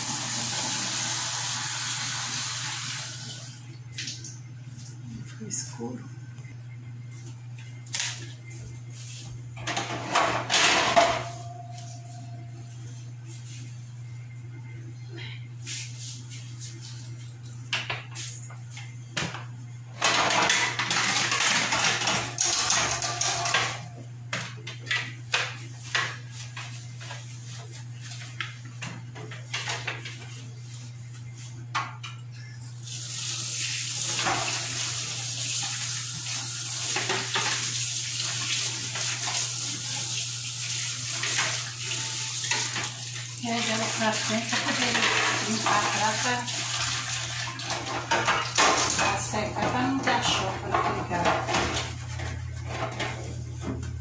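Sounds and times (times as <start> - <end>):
water running: 0.0 - 5.7, 32.8 - 52.2.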